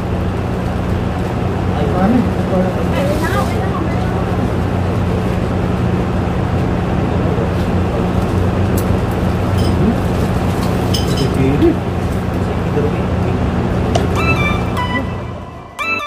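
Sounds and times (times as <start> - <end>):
low mechanical hum: 0.0 - 16.0
noisy wash: 0.0 - 16.0.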